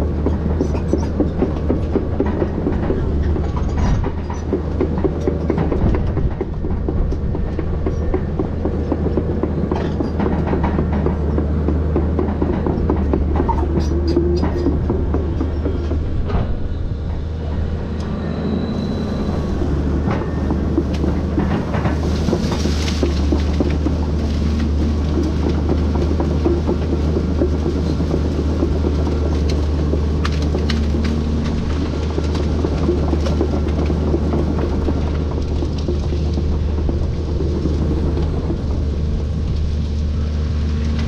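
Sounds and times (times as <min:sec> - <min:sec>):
knocks and clicks: 0:00.0 - 0:17.2, 0:19.6 - 0:41.0
excavator diesel engine running: 0:00.0 - 0:41.0.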